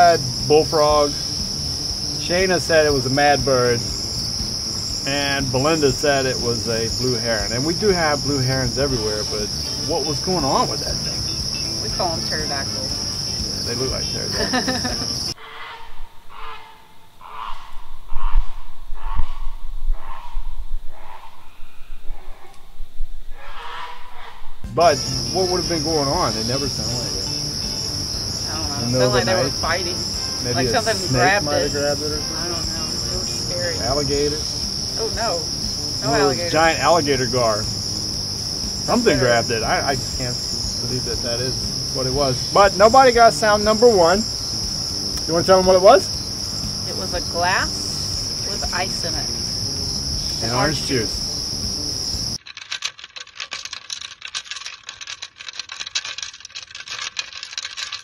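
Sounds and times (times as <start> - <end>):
two people talking: 0.0 - 1.4, 2.2 - 3.9, 5.0 - 15.4, 24.8 - 37.9, 38.6 - 44.4, 45.2 - 46.2, 46.8 - 49.3, 50.3 - 51.2
steady high-pitched hum: 24.7 - 52.4.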